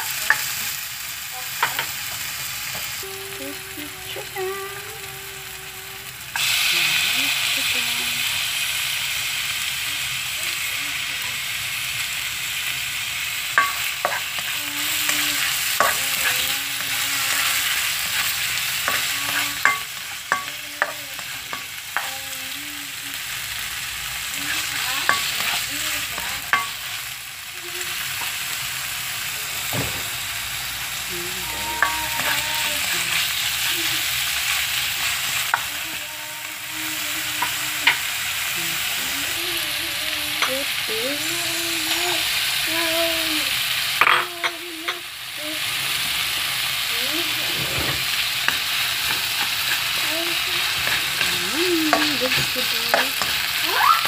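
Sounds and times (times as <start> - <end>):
chicken sizzling in frying pan: 0.0 - 54.0.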